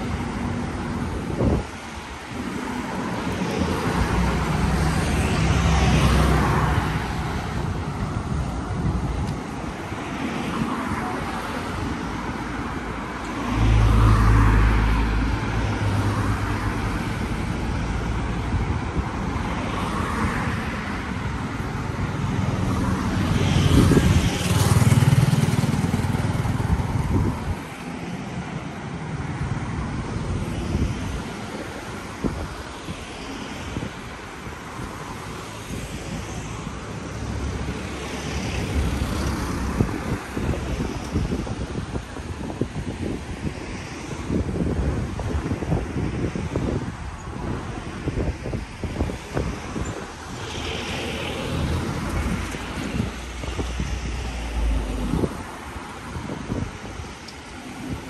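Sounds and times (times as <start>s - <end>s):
cars passing: 0.0s - 58.0s.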